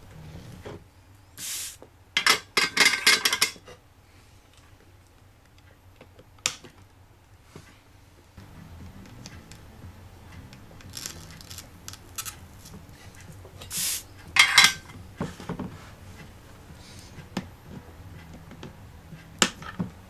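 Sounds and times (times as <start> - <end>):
scratchy rustles: 10.9 - 14.3.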